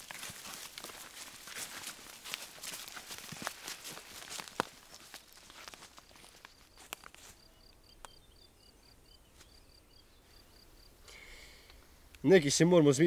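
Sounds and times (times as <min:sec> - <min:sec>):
feet shifting on leaf litter: 0:00.0 - 0:07.4
faint high chirping: 0:07.2 - 0:11.7.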